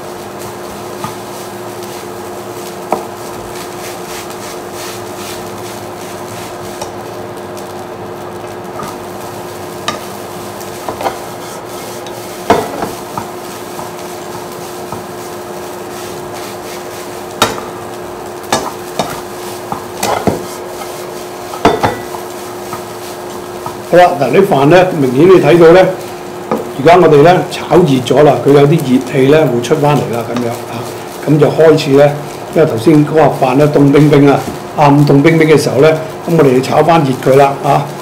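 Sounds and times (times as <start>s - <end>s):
induction cooker hum: 0.0s - 38.0s
light sizzle: 0.0s - 38.0s
spatula scraping a wok: 0.2s - 7.0s, 8.8s - 23.9s.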